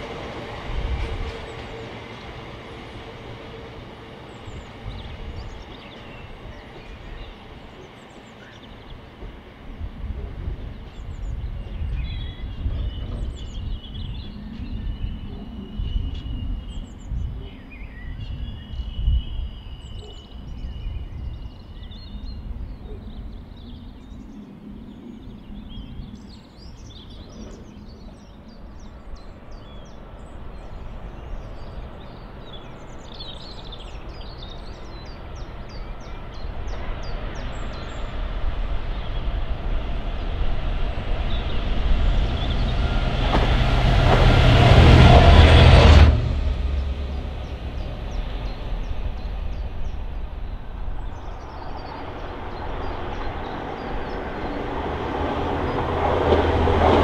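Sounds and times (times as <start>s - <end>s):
diesel locomotive engine: 0.0s - 22.1s, 27.0s - 57.0s
freight train rumbling: 0.0s - 57.0s
birds chirping: 0.4s - 9.8s, 10.7s - 57.0s.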